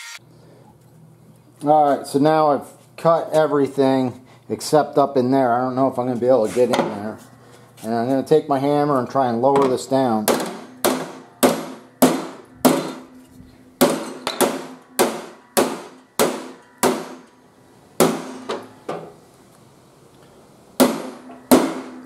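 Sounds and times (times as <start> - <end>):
hammer striking steel plate: 10.3 - 13.1, 13.8 - 17.4, 18.0 - 18.7, 20.8 - 22.0.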